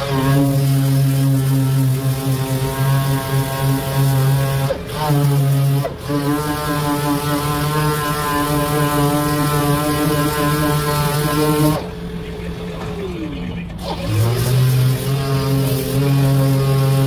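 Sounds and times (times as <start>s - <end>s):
pneumatic sander whine: 0.0s - 17.0s.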